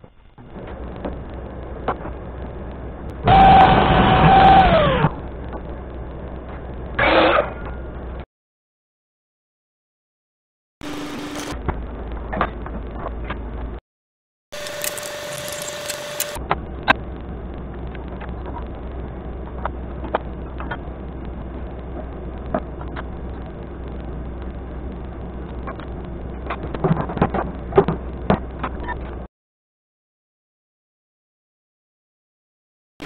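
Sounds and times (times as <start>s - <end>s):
clicks and knocks of tools: 14.6s - 16.4s
low hum and hiss: 14.6s - 29.3s.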